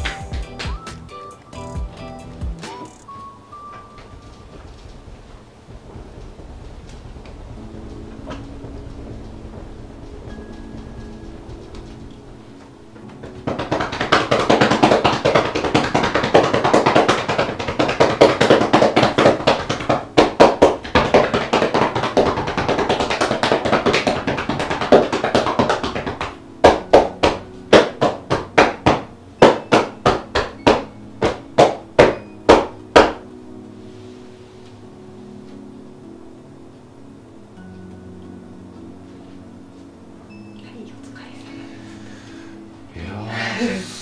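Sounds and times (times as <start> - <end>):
hands slapping legs: 0.0 - 1.0, 13.1 - 33.2.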